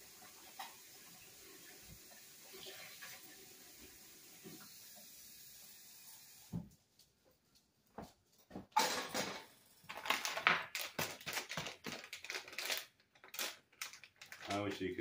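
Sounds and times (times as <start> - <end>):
kitchen scrapes and clatters: 8.8 - 12.7.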